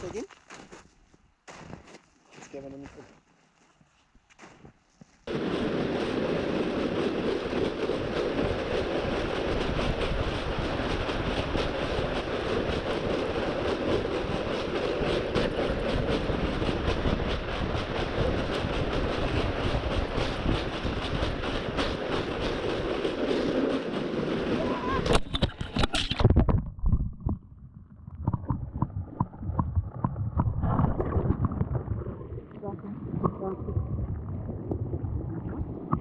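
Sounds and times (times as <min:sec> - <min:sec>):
sled scraping over snow: 0:05.0 - 0:26.3.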